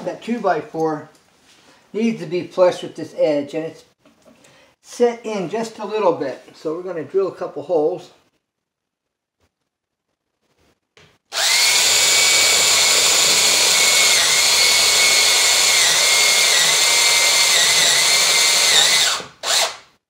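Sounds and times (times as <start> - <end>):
cordless drill boring into wood: 11.3 - 19.9.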